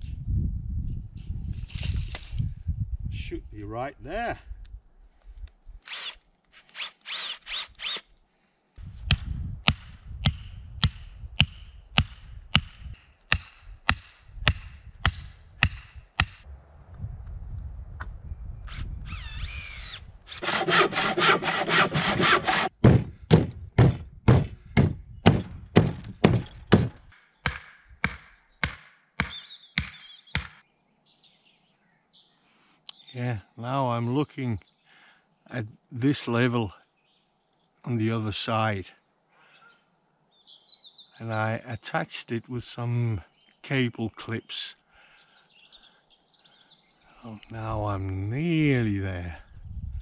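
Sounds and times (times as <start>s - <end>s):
tool working wood: 5.9s - 8.0s, 19.1s - 27.1s.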